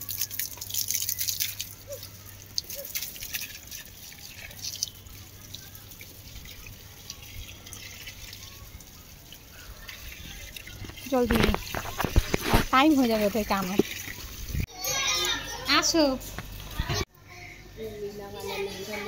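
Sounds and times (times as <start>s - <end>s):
crackly splashes: 0.0s - 14.7s
water dripping and trickling: 0.0s - 14.7s.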